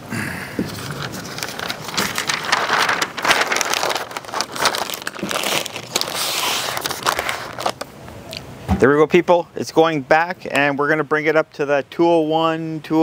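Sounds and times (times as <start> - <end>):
paper crinkling and rustling: 0.6 - 7.9.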